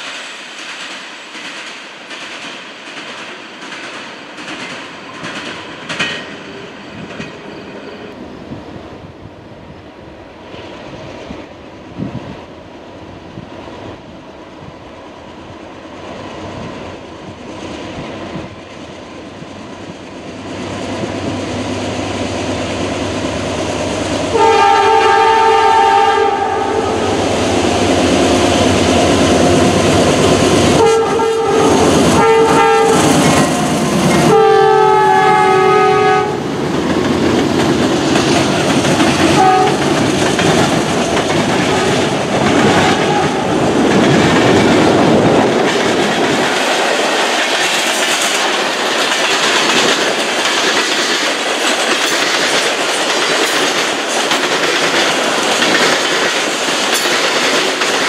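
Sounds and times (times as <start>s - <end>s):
train wheels clattering on rails: 0.0s - 8.3s, 27.0s - 34.6s, 35.3s - 58.0s
train air horn: 24.3s - 27.2s, 30.8s - 36.4s, 39.3s - 39.9s, 42.7s - 43.5s.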